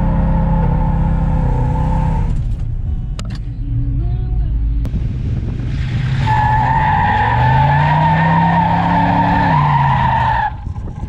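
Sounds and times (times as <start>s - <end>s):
tires squealing: 5.8s - 11.0s.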